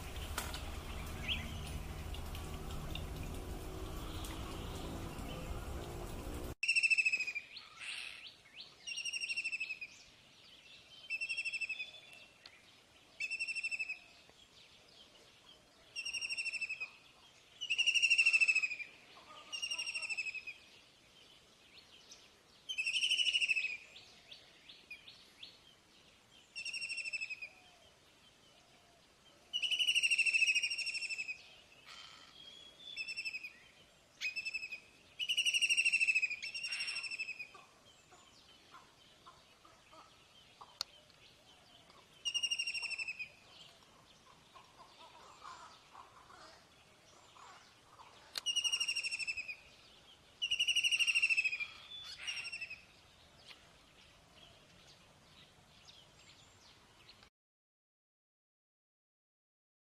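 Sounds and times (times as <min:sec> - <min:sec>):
songbird trilled call: 0:17.6 - 0:20.6, 0:22.7 - 0:23.9, 0:26.6 - 0:27.6, 0:29.5 - 0:33.6, 0:34.2 - 0:41.0, 0:42.2 - 0:43.4, 0:48.4 - 0:49.7, 0:50.4 - 0:53.6.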